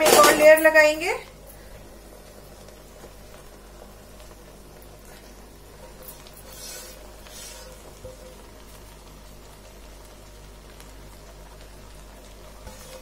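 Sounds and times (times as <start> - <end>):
spoon scraping cooking pans: 5.8 - 8.5, 12.6 - 13.0.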